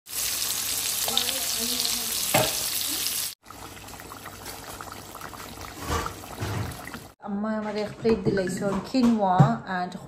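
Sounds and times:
fish sizzling in hot oil: 0:00.1 - 0:07.2
curry simmering in pot: 0:03.4 - 0:07.2.

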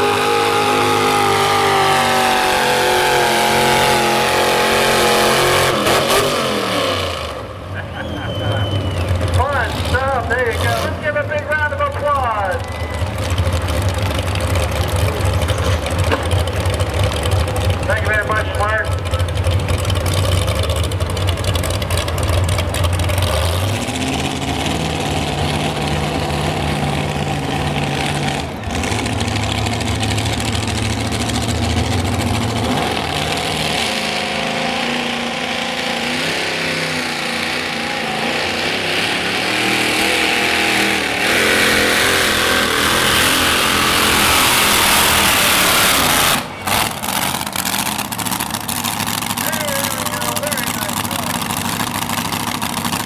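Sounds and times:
pulling tractor engine roaring: 0:00.0 - 0:53.0
tractor engine revving: 0:00.0 - 0:53.0.

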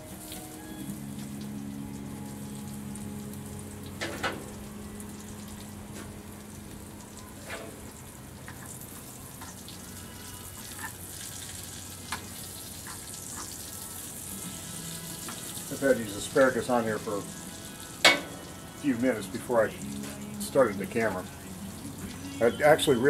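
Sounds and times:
meat sizzling on a grill: 0:00.0 - 0:23.0.

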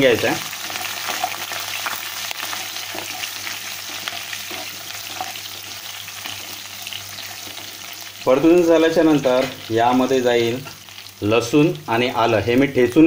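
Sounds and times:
hot oil sizzling: 0:00.0 - 0:13.0
spatula scraping a pan: 0:02.4 - 0:07.9.

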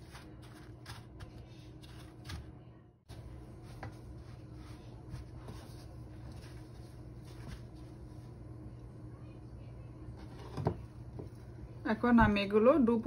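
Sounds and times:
breadcrumbs rustling: 0:00.0 - 0:08.4
low steady hum: 0:00.0 - 0:13.0.

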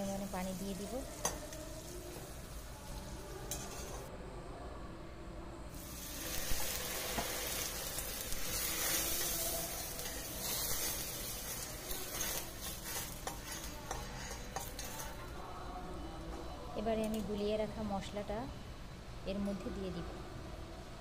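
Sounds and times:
onions sizzling and bubbling: 0:00.0 - 0:04.1, 0:05.7 - 0:15.4
metal spatula scraping pot: 0:03.5 - 0:04.1, 0:08.5 - 0:15.3.

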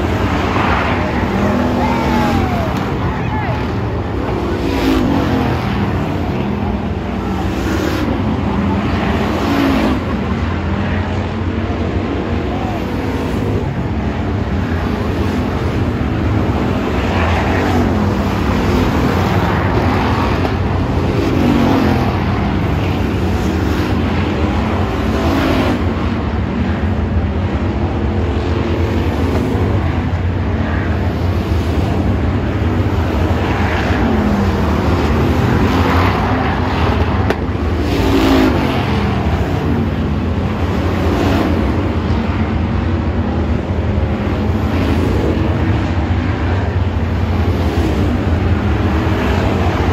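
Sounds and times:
race car engines: 0:00.0 - 0:49.9.

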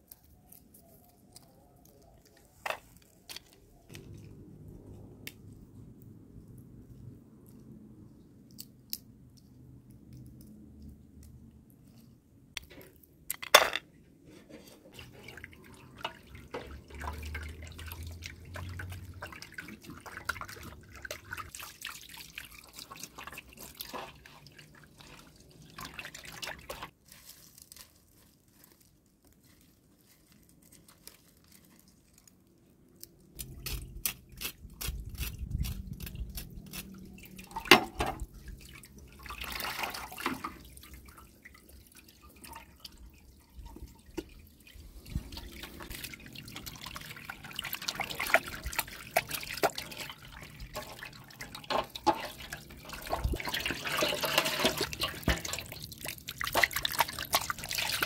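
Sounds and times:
water splashing and dripping: 0:14.9 - 0:27.0, 0:35.6 - 0:58.0.

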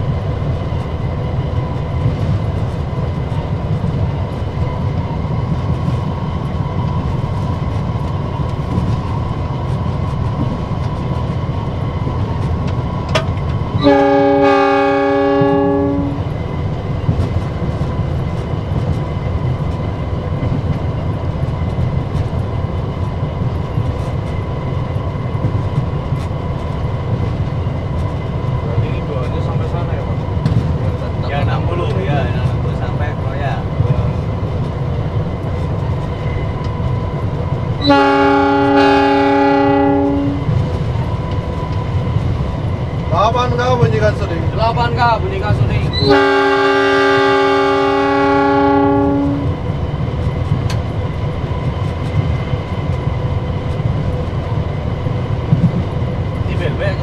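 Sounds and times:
diesel locomotive rumbling: 0:00.0 - 0:57.0
locomotive horn blast: 0:13.8 - 0:16.2, 0:37.8 - 0:40.5, 0:46.0 - 0:49.6.

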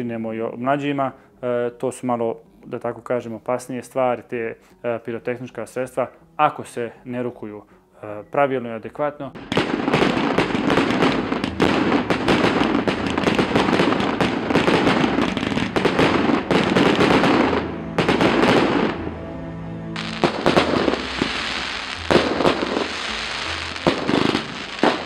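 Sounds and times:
background music: 0:00.0 - 0:25.0
fireworks crackling: 0:09.4 - 0:19.0, 0:20.0 - 0:25.0
fireworks bangs: 0:09.4 - 0:19.1, 0:20.0 - 0:25.0.

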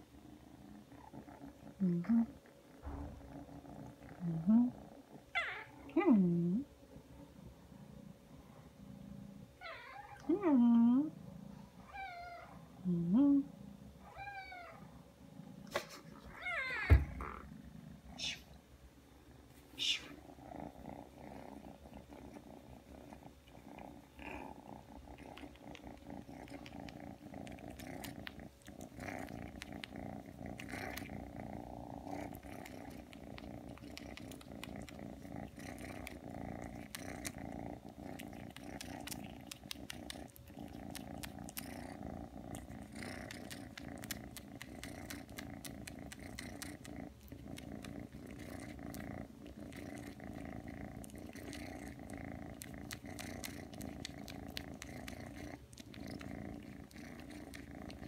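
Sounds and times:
kitten purring: 0:00.0 - 0:18.7, 0:19.3 - 0:58.0.

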